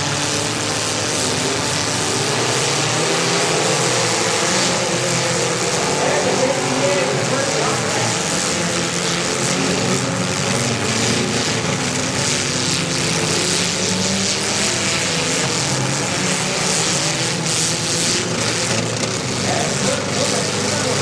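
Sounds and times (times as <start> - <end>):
car engines revving: 0.0 - 21.0.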